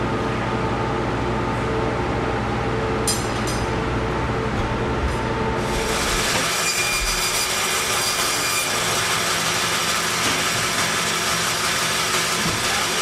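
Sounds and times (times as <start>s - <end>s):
meat saw cutting: 5.6s - 13.0s.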